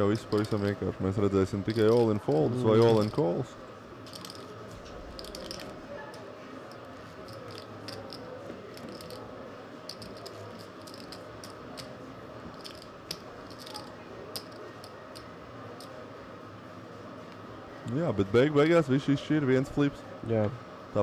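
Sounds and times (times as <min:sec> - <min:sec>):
poker chips clicking: 0:00.2 - 0:00.7, 0:01.7 - 0:03.2, 0:04.1 - 0:05.8, 0:06.7 - 0:09.3, 0:09.9 - 0:12.0, 0:12.6 - 0:16.0.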